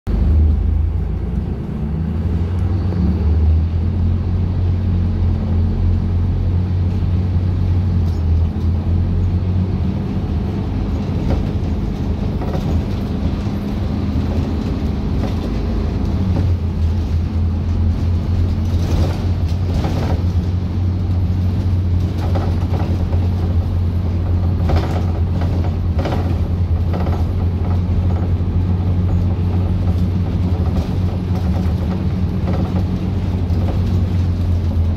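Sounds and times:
bus engine drone: 0.0s - 34.9s
road noise: 0.0s - 34.9s
body rattles and knocks: 10.2s - 34.9s.

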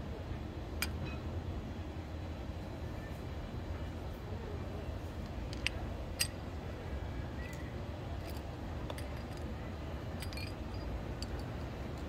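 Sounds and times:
metal parts clinking on asphalt: 5.2s - 6.6s, 8.1s - 12.0s.

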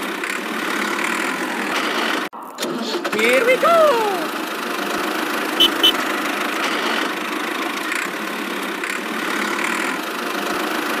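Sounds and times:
toy tractor engine sound: 0.0s - 11.0s
short high beeps: 5.6s - 6.0s.

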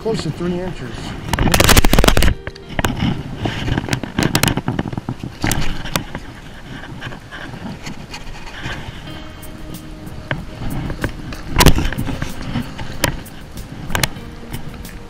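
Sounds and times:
scrapes and knocks on rock: 1.3s - 9.0s
clothing rustling: 1.4s - 9.4s
steady low rush: 2.2s - 15.0s.

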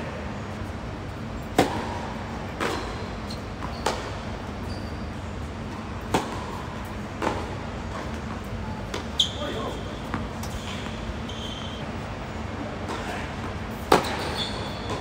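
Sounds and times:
racket hitting tennis ball: 1.5s - 4.2s, 6.0s - 9.2s, 12.8s - 15.0s.

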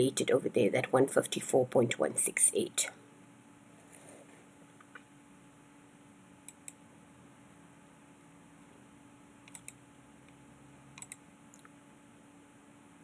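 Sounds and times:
faint steady hum: 0.0s - 13.0s
mouse button clicking: 11.0s - 11.2s.

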